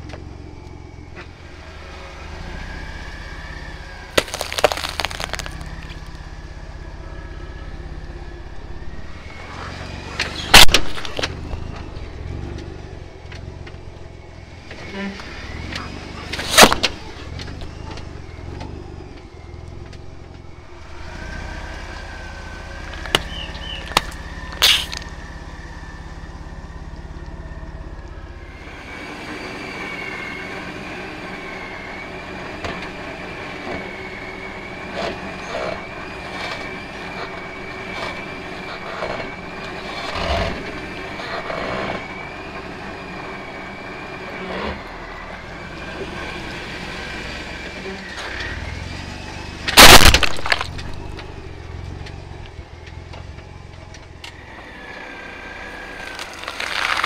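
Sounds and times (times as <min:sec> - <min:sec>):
tire rolling over objects: 0:00.0 - 0:57.0
vehicle engine running low: 0:00.0 - 0:57.0
small pops and crackles: 0:04.2 - 0:06.2.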